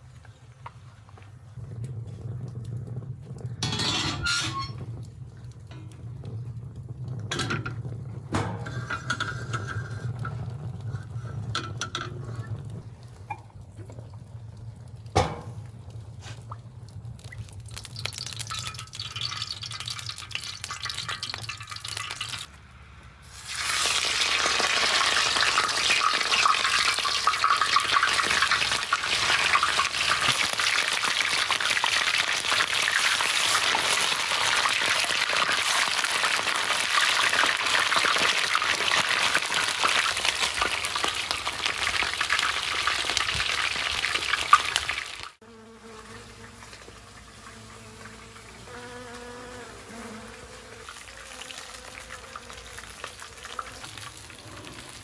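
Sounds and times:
oil being poured: 4.7s - 22.6s
meat sizzling in hot oil: 17.2s - 22.5s, 23.3s - 45.4s, 51.0s - 55.0s.

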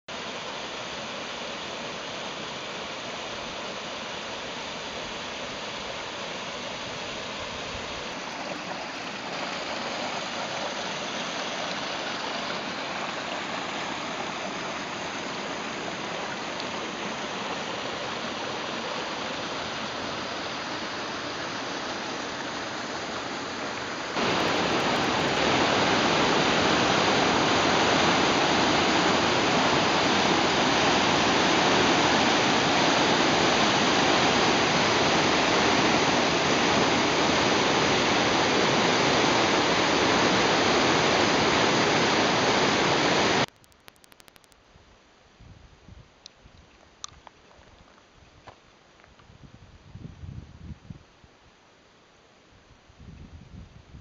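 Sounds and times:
roar of river rapids: 0.1s - 43.5s
small waterfall splashing into pool: 8.1s - 43.5s.

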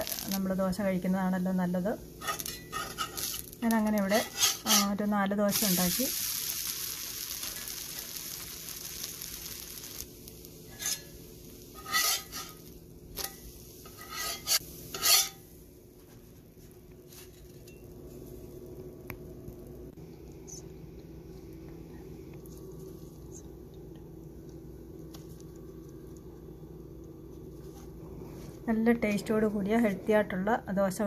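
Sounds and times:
food sizzling on hot pan: 0.0s - 15.8s
spatula scraping pan: 2.2s - 3.5s, 4.1s - 5.0s, 10.7s - 15.5s.

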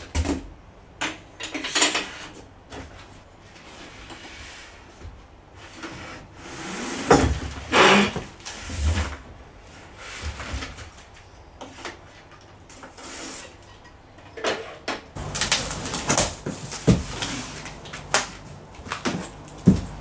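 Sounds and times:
cardboard scraping and rustling: 15.2s - 20.0s.

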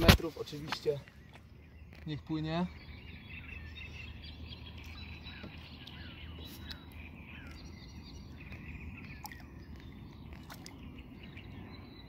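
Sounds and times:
faint birdsong: 0.0s - 12.0s
small water splashes: 8.3s - 11.6s.

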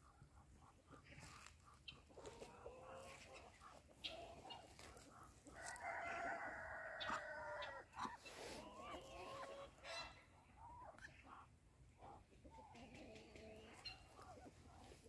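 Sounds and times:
rooster crowing: 5.6s - 7.6s.

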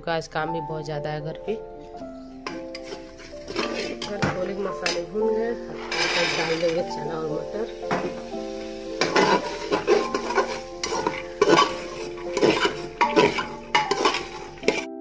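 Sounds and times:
ladle scraping a metal pot: 2.4s - 7.2s, 8.9s - 14.9s.

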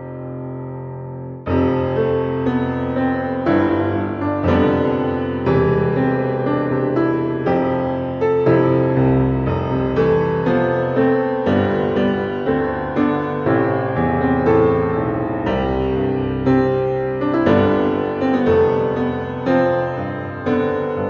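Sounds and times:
slow classical keyboard music: 0.0s - 21.0s.

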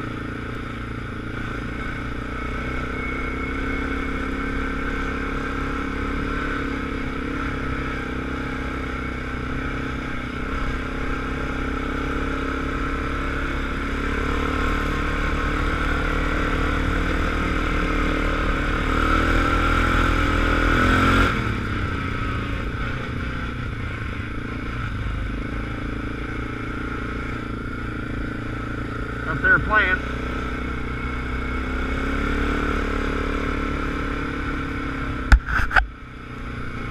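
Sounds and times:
atv engine revving: 0.0s - 36.9s.

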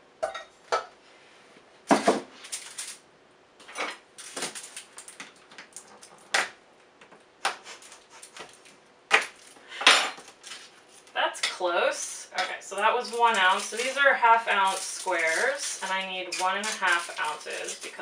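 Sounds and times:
foil wrapper rustling: 2.4s - 3.0s, 4.2s - 6.2s, 10.2s - 11.2s, 12.7s - 18.0s.

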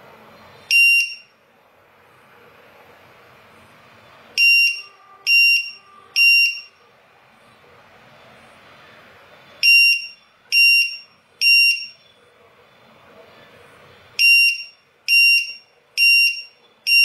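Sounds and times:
high-pitched buzzer beeps: 0.7s - 1.3s, 4.4s - 6.7s, 9.6s - 12.0s, 14.2s - 17.0s.

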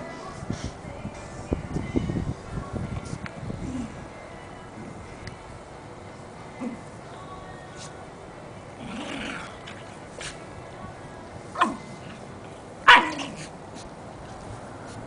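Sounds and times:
dog growling: 8.8s - 10.4s
dog barking: 12.9s - 13.5s.

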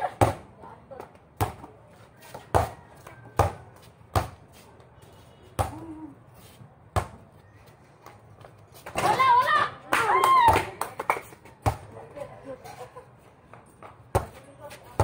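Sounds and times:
basketball bouncing on concrete: 0.0s - 4.5s, 5.6s - 5.9s, 6.9s - 7.3s, 10.4s - 12.0s, 13.5s - 15.0s.

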